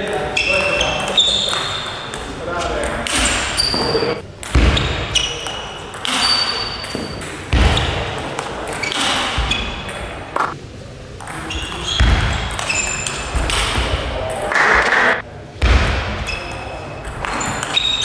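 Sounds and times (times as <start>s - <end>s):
shoe squeaks: 0.3s - 2.2s, 3.1s - 4.2s, 4.8s - 7.2s, 8.7s - 10.0s, 11.4s - 13.4s, 17.3s - 18.0s.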